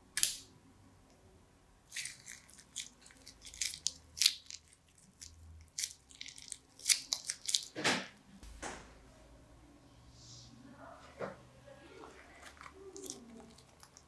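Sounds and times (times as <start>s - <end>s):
wet slime crackles and squelches: 1.9s - 7.8s, 11.8s - 14.0s.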